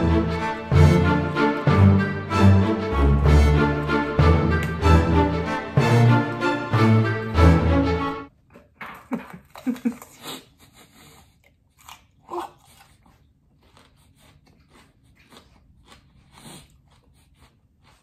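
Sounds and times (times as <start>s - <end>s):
crunchy chewing of pepper: 9.4s - 18.0s.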